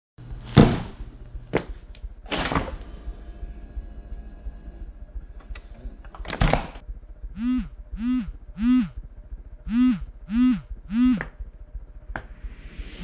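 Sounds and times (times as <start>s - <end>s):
mobile phone vibrating: 7.3s - 11.5s.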